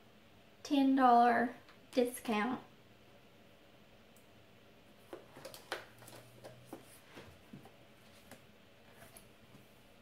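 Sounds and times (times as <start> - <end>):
paper rustling: 5.1 - 9.7.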